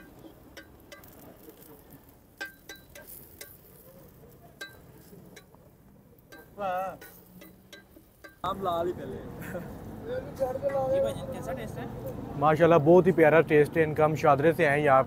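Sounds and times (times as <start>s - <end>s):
spatula clinking on metal griddle: 0.0s - 8.5s.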